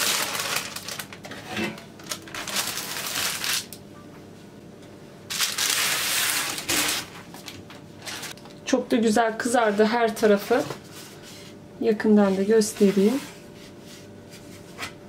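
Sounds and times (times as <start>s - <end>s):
parchment paper rustling: 0.0s - 1.4s, 2.0s - 3.8s, 5.3s - 8.4s, 12.2s - 14.7s.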